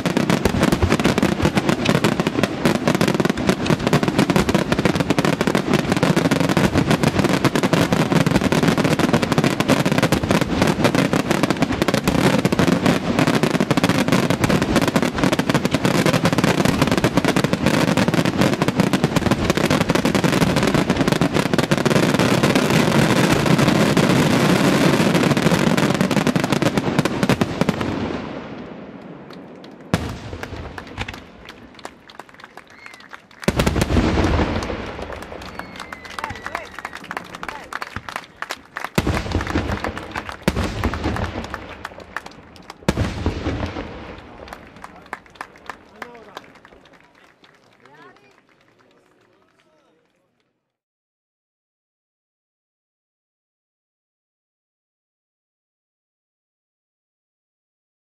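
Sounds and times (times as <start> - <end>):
firework shells bursting: 29.0 - 45.8.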